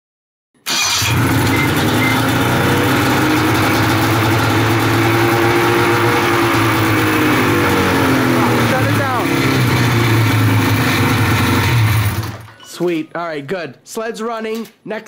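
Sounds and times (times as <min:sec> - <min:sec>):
snowmobile engine idling: 0:01.2 - 0:12.4.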